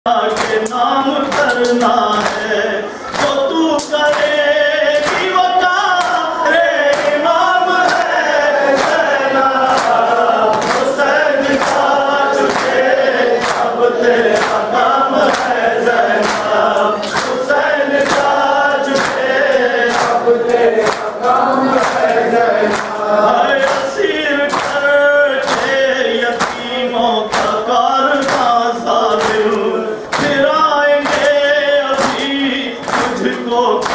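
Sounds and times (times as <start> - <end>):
men singing a lament: 0.1 - 33.9
hands slapping chests: 9.7 - 10.9, 16.2 - 17.4.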